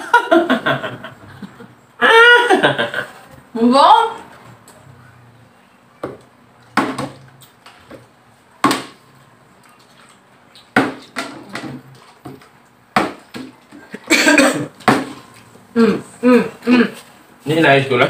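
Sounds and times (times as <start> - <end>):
knocks and clatters at a table: 6.0 - 9.0, 10.6 - 14.0, 14.8 - 15.5.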